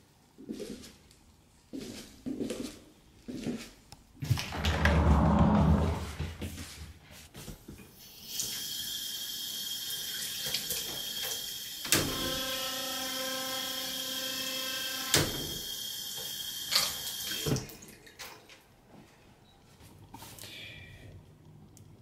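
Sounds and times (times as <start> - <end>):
water running from a tap: 8.1 - 11.8, 15.4 - 17.9.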